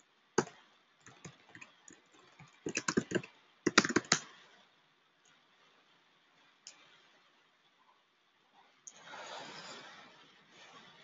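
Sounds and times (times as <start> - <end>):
typing on computer keyboard: 0.4 - 4.3.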